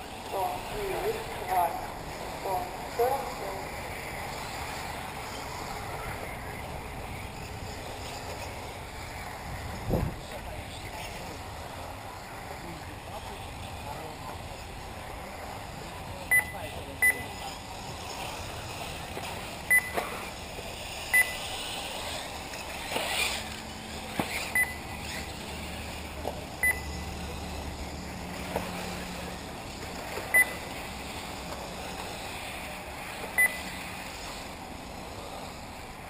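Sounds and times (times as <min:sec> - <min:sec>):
steady outdoor hiss: 0:00.0 - 0:36.0
short electronic beeps: 0:16.3 - 0:17.3, 0:19.7 - 0:20.0, 0:21.1 - 0:21.4, 0:24.5 - 0:24.9, 0:26.6 - 0:27.1, 0:30.3 - 0:30.6, 0:33.4 - 0:33.8.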